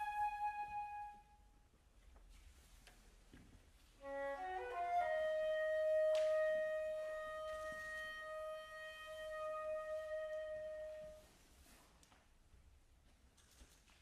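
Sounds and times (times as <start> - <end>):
solo woodwind playing: 0.0 - 1.5, 4.0 - 11.6.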